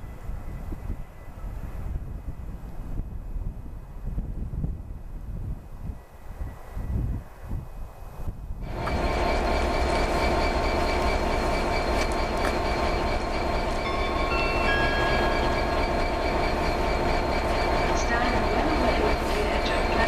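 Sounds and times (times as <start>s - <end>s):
steam train running noise: 8.6s - 20.0s
high wheel squeals: 8.7s - 20.0s.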